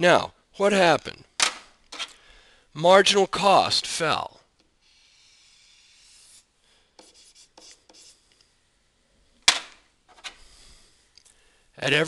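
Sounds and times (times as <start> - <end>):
stylus scratching on tablet: 4.8 - 8.2.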